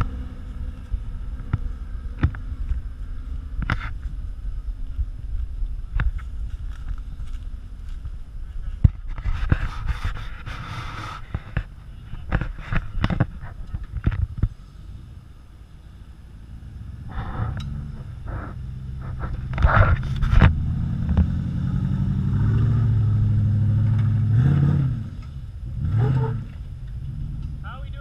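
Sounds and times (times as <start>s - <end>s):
tyres crackling over rocks: 0.0s - 14.6s
suv engine under load: 0.0s - 27.7s.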